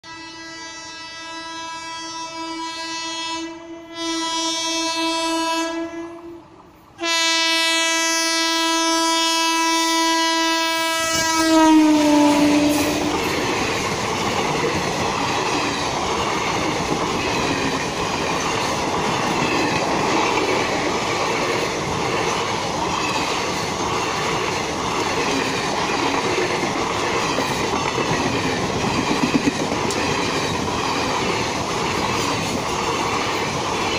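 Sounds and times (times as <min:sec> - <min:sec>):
train horn blasts: 0:00.0 - 0:13.3
train passing wheel noise: 0:02.5 - 0:33.9.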